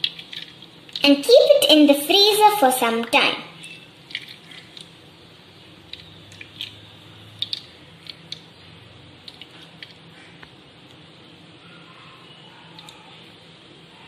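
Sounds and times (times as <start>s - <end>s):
juice dripping into plastic tray: 0.0s - 1.2s, 4.0s - 5.0s, 5.8s - 11.0s
faint steady hum: 0.0s - 14.0s.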